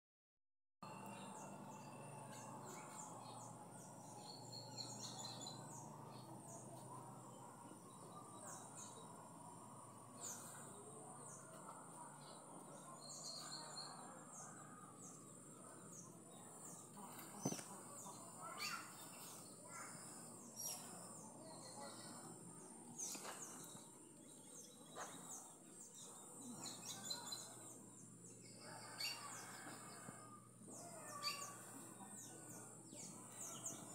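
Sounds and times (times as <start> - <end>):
birds chirping and calling: 0.8 - 33.9.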